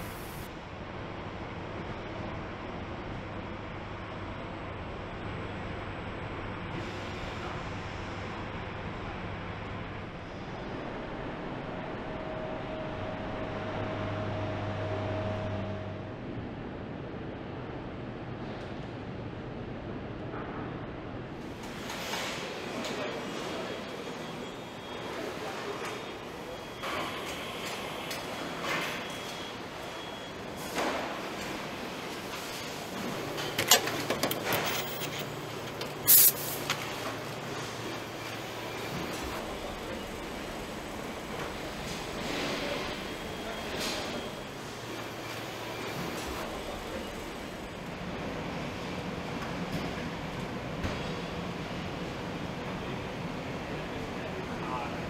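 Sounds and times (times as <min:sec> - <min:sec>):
machinery noise: 0:21.6 - 0:55.0
short loud hiss: 0:36.1 - 0:36.6.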